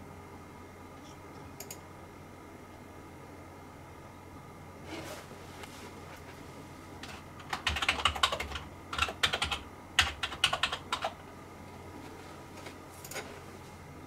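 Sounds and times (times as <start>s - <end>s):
typing on keyboard: 7.0s - 11.2s.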